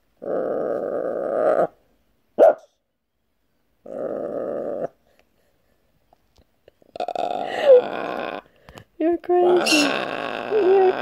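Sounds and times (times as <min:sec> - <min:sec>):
parrot growling: 0:00.2 - 0:01.8, 0:03.8 - 0:05.0, 0:06.9 - 0:08.5, 0:09.4 - 0:11.0.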